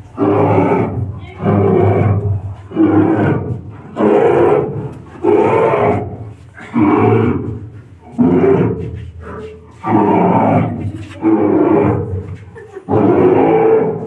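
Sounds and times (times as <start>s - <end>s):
monster roars: 9.8s - 12.2s, 12.9s - 14.0s.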